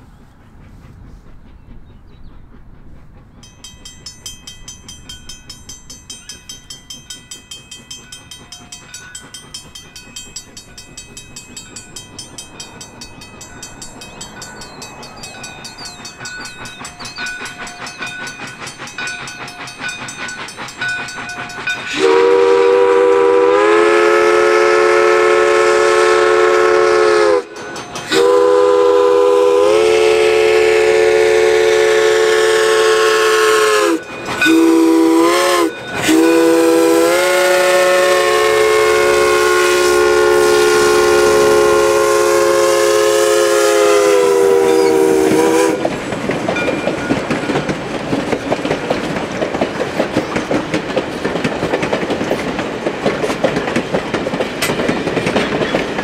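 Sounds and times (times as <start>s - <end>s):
steam locomotive running: 0.0s - 56.0s
steam whistle chord: 20.6s - 46.0s.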